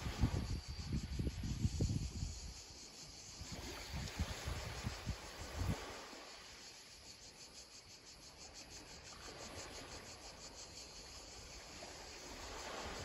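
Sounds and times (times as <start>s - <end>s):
insect chirring: 0.0s - 13.0s.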